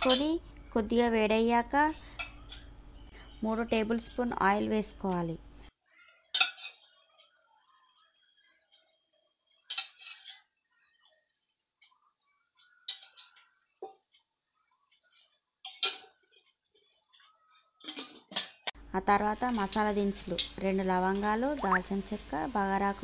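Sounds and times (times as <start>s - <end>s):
metal kitchenware clinking: 6.3s - 6.9s, 9.7s - 10.4s, 12.8s - 13.5s, 15.0s - 16.9s, 17.6s - 18.7s.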